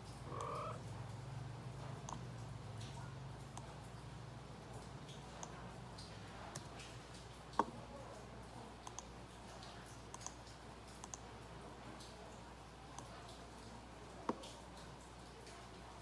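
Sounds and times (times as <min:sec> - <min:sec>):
computer mouse clicks: 0:08.8 - 0:09.1, 0:10.1 - 0:10.4, 0:11.0 - 0:11.2.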